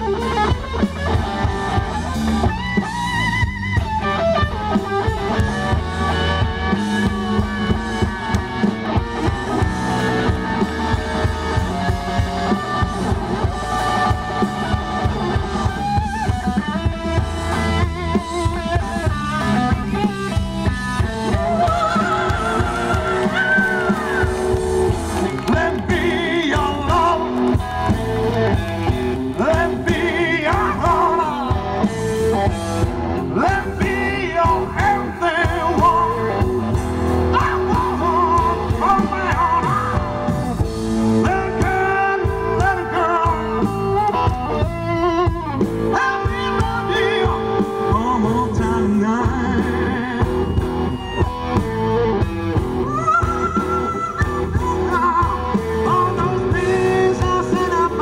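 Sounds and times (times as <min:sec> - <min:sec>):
bass guitar: 0:00.0 - 0:58.0
drums: 0:00.0 - 0:58.0
electric guitar: 0:00.0 - 0:58.0
man singing: 0:21.0 - 0:24.6, 0:25.3 - 0:27.6, 0:29.2 - 0:32.0, 0:33.2 - 0:40.4, 0:41.0 - 0:50.7, 0:52.8 - 0:58.0.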